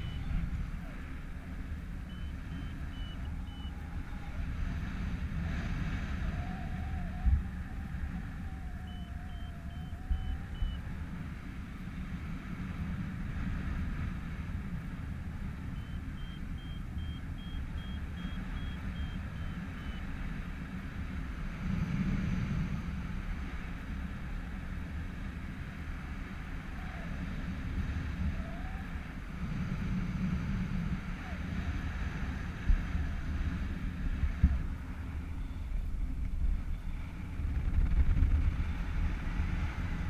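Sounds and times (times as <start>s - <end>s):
variometer beeps: 0.0s - 0.5s, 2.0s - 3.7s, 8.9s - 10.8s, 15.7s - 20.1s, 35.4s - 35.8s
wind rushing on microphone: 0.0s - 40.0s.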